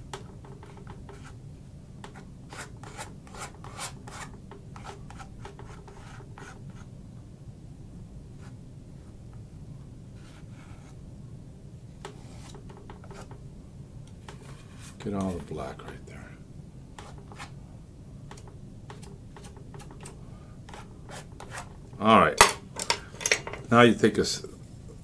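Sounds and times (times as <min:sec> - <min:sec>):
low room hum: 0:00.0 - 0:25.0
paintbrush scratching on canvas: 0:02.1 - 0:06.9, 0:12.0 - 0:13.4, 0:17.0 - 0:17.6, 0:20.7 - 0:21.8.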